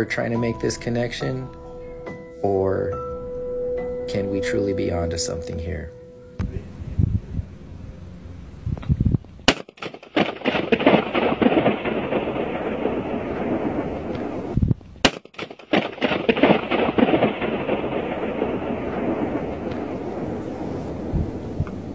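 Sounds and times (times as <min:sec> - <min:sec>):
long crackling echo: 0:08.8 - 0:21.9.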